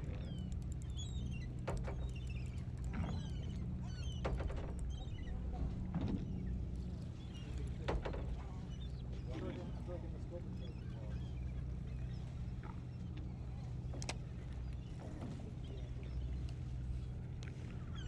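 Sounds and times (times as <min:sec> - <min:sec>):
boat engine humming: 0:00.0 - 0:18.0
knocks against hull: 0:04.2 - 0:04.8, 0:07.7 - 0:08.6
birds chirping: 0:06.2 - 0:18.0.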